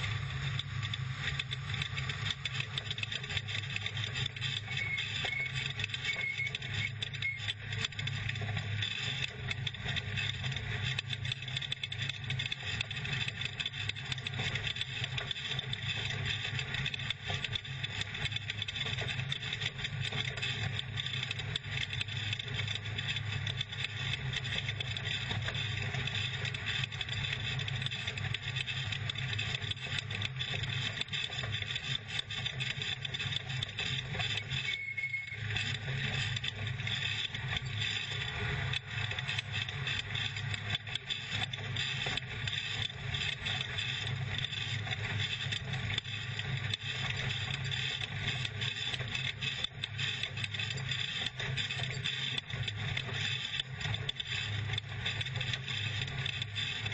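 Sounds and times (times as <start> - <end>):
truck engine drone: 0.0 - 7.8, 34.2 - 40.2
tyre and chassis noise: 0.0 - 56.9.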